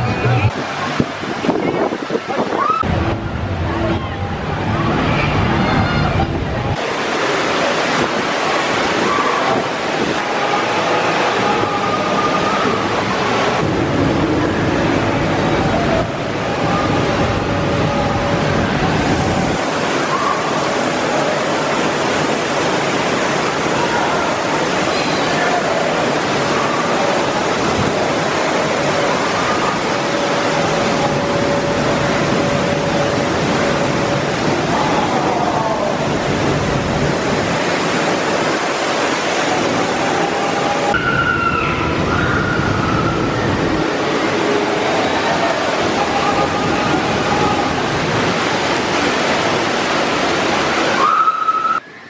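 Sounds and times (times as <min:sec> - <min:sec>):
rushing water: 0:00.0 - 0:52.0.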